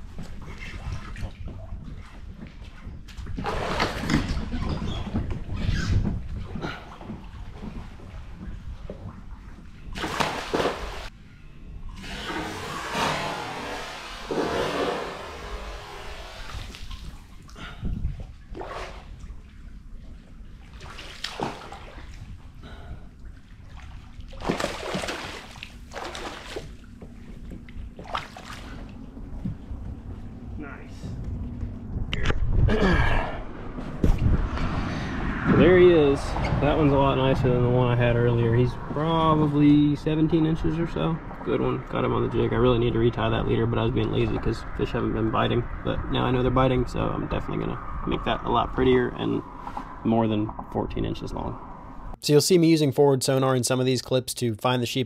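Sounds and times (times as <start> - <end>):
fish splashing at water surface: 10.0 - 11.1, 23.9 - 26.8
water lapping against kayak hull: 12.0 - 30.4
steady low rumble: 26.7 - 52.3.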